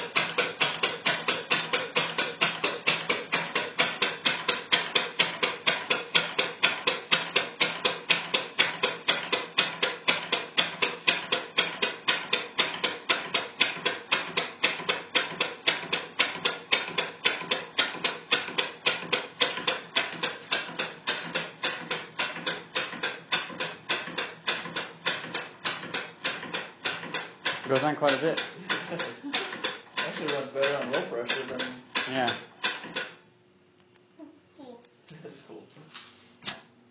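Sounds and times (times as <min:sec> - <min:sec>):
air engine chuffing: 0:19.6 - 0:33.0.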